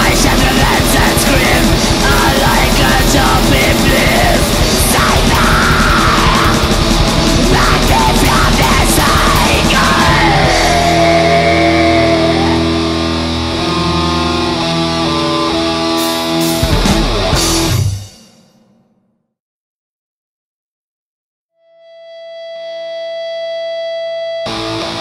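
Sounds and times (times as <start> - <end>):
held guitar chords ringing: 0.0 - 18.2, 21.6 - 25.0
distorted electric guitars: 0.0 - 18.6, 21.8 - 25.0
drums: 0.0 - 19.1, 24.5 - 25.0.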